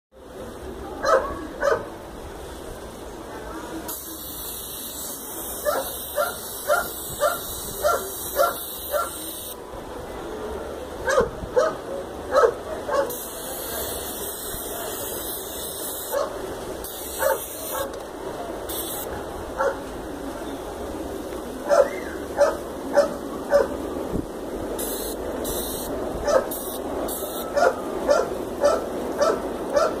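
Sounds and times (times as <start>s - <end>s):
dog barking: 1.0s - 1.9s, 5.6s - 9.3s, 11.0s - 13.2s, 16.1s - 16.4s, 17.1s - 17.9s, 19.6s - 19.8s, 21.7s - 23.8s, 26.2s - 26.6s, 27.5s - 30.0s
spray paint can hissing: 3.9s - 9.6s, 13.1s - 19.1s, 24.8s - 27.5s.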